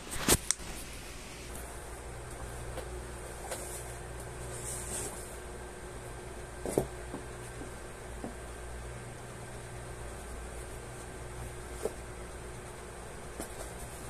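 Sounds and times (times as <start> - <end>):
steady low hum: 0.0 - 14.0
cardboard rustling and scraping: 2.5 - 5.4, 6.6 - 7.7, 10.9 - 12.1, 12.7 - 14.0.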